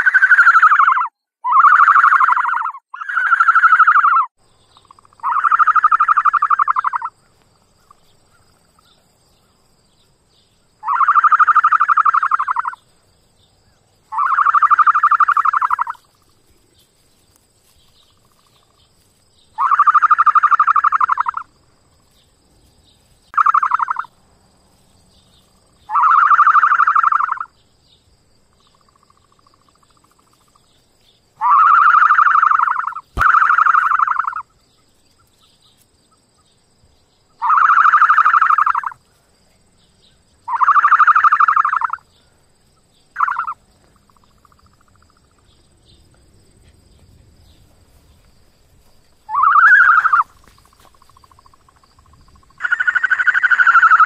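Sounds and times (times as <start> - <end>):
ostrich calling: 0.0 - 9.0, 10.8 - 12.8, 14.1 - 16.2, 19.5 - 21.5, 23.3 - 24.1, 25.8 - 27.5, 31.4 - 34.6, 37.3 - 39.0, 40.4 - 42.0, 43.1 - 45.5, 49.2 - 54.0.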